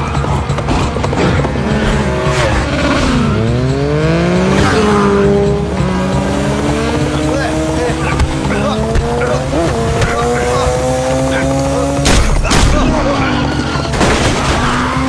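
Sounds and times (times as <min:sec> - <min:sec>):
motorcycle engines revving: 0:00.0 - 0:15.0.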